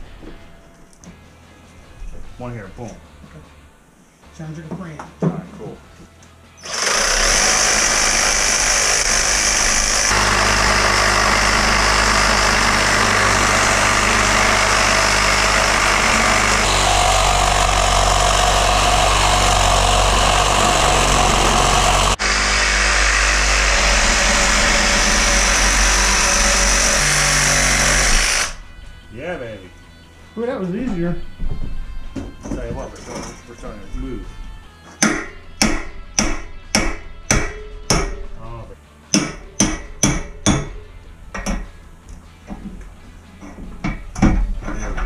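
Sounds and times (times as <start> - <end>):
reciprocating saw cutting metal: 6.6 - 28.7.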